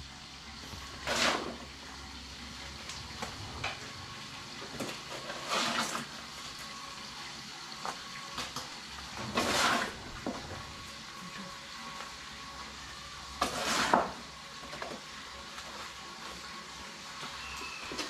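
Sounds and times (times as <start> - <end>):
cement scraping: 0.6 - 1.7, 4.6 - 6.2, 9.2 - 10.7, 13.4 - 14.2.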